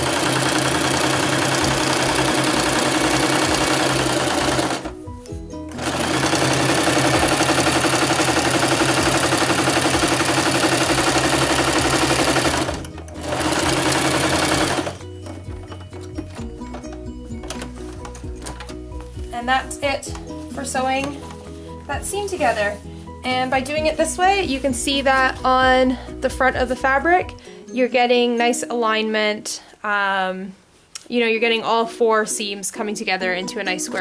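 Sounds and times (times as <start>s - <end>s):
sewing machine running: 0.0s - 4.9s, 5.7s - 18.5s.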